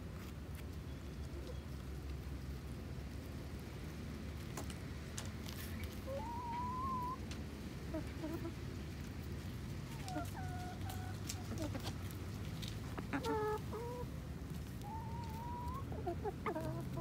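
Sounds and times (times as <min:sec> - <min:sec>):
beaks pecking on ground: 0:00.1 - 0:17.0
hens clucking and calling: 0:05.6 - 0:17.0.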